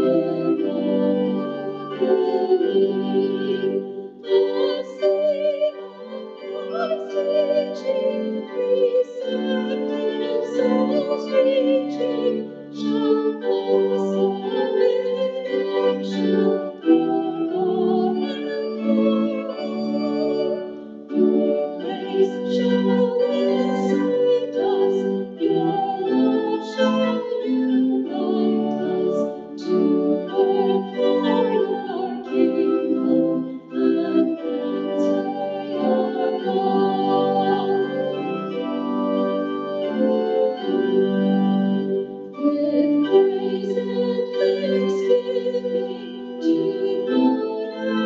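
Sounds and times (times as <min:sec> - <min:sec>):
organ playing a hymn: 0:00.0 - 0:48.0.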